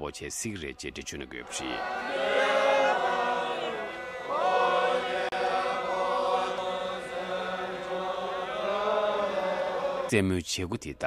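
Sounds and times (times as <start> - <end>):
crowd chanting in unison: 1.4 - 10.1.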